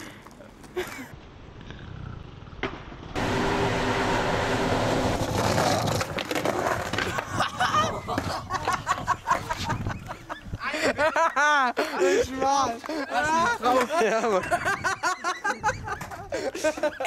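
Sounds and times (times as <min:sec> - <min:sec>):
skateboard wheels rolling on concrete: 0:00.2 - 0:11.4
skateboard clattering in a fall: 0:05.2 - 0:09.1.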